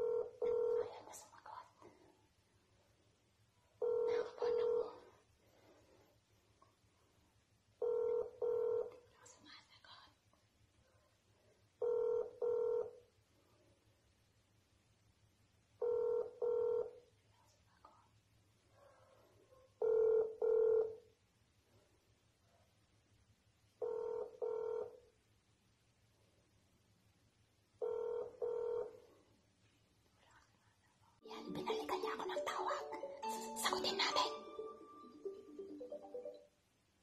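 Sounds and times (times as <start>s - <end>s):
phone ringback beeps: 0.0s - 0.8s, 3.8s - 4.9s, 7.8s - 8.9s, 11.8s - 13.0s, 15.8s - 17.0s, 19.8s - 21.0s, 23.8s - 25.0s, 27.8s - 29.0s.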